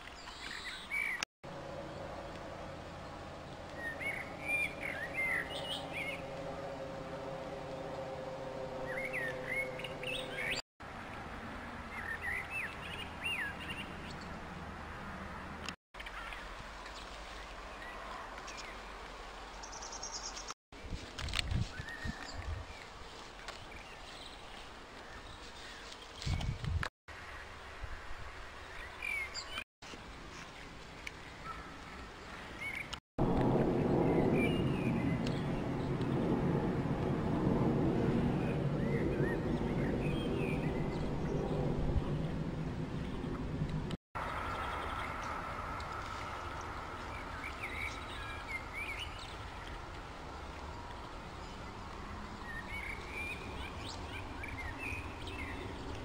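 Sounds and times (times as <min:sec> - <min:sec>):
outdoor background noise: 0:00.0 - 0:56.0
birds chirping: 0:03.0 - 0:06.4, 0:08.8 - 0:10.6, 0:38.2 - 0:56.0
steady low rushing noise: 0:33.2 - 0:56.0.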